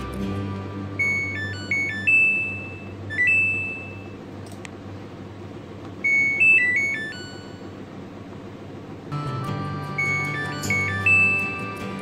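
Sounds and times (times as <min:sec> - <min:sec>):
washing machine buzzer beeping: 0:00.9 - 0:04.3, 0:06.0 - 0:07.9, 0:09.1 - 0:12.0
click: 0:04.4 - 0:04.8
short tune of stepped notes: 0:09.1 - 0:12.0.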